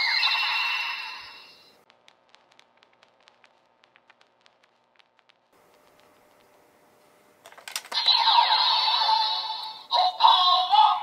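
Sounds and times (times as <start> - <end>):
electronic toy music and effects: 0.0 - 1.6, 7.9 - 11.0
cards clicking into toy belt: 7.4 - 8.1
recorded toy voice calling out: 8.0 - 11.0.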